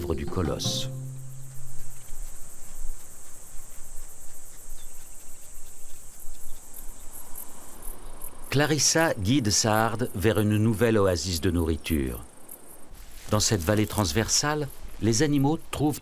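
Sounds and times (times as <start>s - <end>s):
insects chirring: 0.0s - 16.0s.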